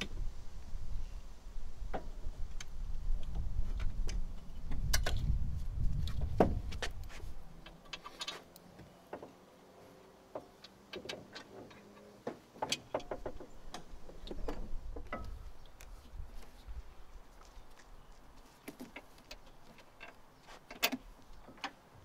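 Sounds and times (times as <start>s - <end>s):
light metallic clicks and knocks: 10.3s - 15.9s, 18.6s - 21.8s.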